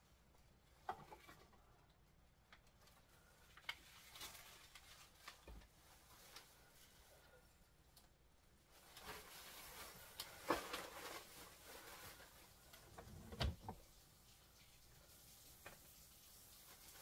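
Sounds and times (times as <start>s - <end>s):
paper and plastic bag crinkling: 2.7s - 7.1s, 8.7s - 13.3s.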